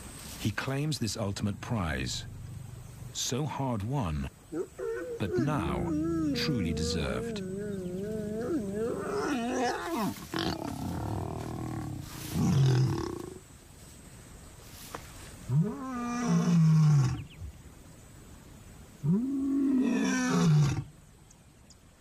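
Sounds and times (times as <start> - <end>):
lion roaring: 4.6 - 13.4, 19.0 - 20.9.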